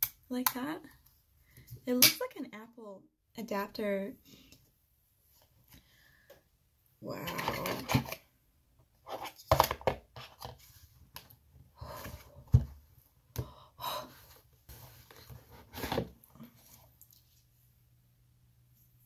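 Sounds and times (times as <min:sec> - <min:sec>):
cardboard rustling and scraping: 0:14.3 - 0:16.9.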